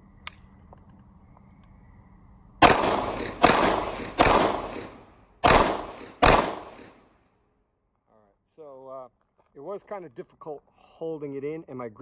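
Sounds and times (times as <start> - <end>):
pistol shots echoing: 2.6 - 7.1.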